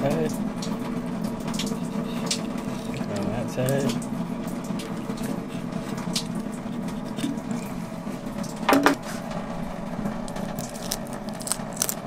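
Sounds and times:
steady low hum: 0.0s - 12.0s
knife scraping fish: 10.3s - 12.0s.

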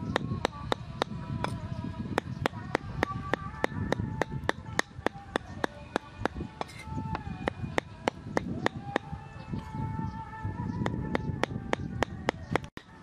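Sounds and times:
cleaver chopping meat on wood: 2.2s - 9.1s, 10.9s - 12.7s.

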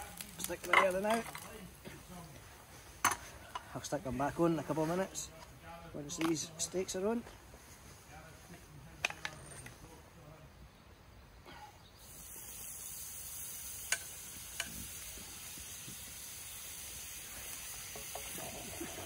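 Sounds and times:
steaks sizzling in frying pan: 12.1s - 19.0s.

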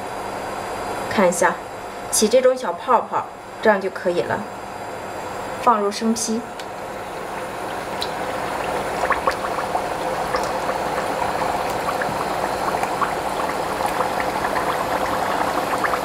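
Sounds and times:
dough deep-frying in hot oil: 6.2s - 16.0s.

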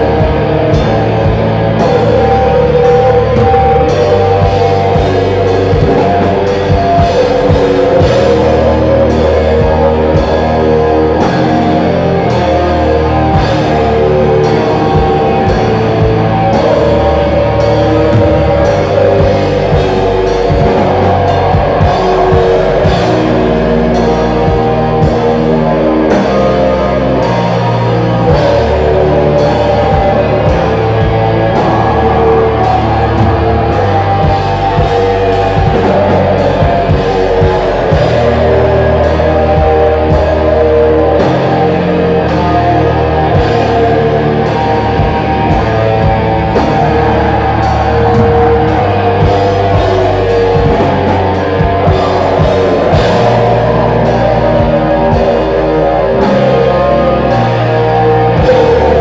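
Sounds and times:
metal band playing: 0.0s - 59.0s.

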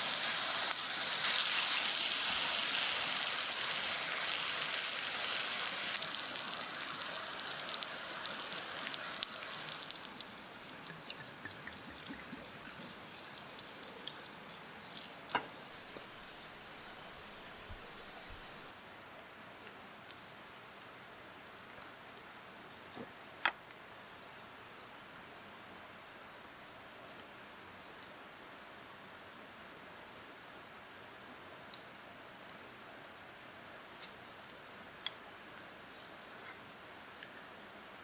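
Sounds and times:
meat sizzling on griddle: 0.0s - 18.2s
small ticks: 31.7s - 33.0s, 33.7s - 37.9s.

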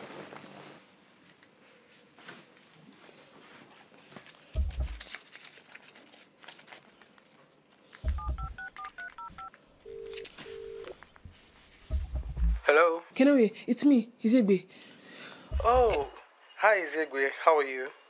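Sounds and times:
low thuds: 4.6s - 5.0s, 11.9s - 12.6s, 15.5s - 16.1s
touch-tone keypad beeps: 8.1s - 10.9s
phone ringback tone: 8.1s - 11.0s.

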